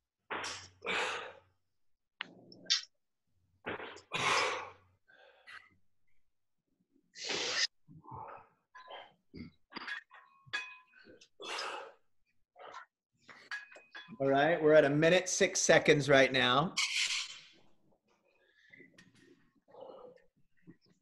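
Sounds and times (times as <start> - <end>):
sharp forceful exhalations: 7.2 - 7.7.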